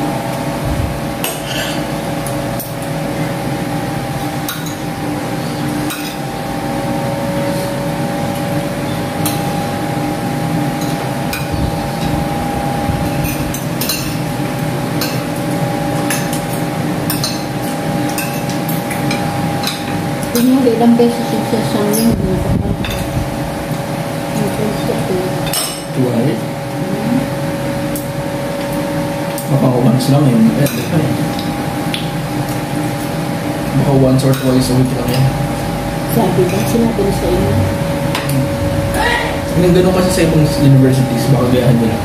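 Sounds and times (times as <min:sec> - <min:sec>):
machine hum: 0:00.0 - 0:42.0
cutlery clinking on plates: 0:01.2 - 0:01.9, 0:25.4 - 0:26.0.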